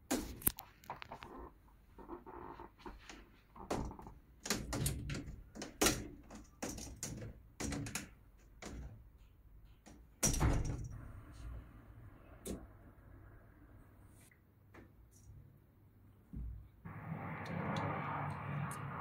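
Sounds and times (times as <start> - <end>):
window screen rattling: 2.4 - 11.0.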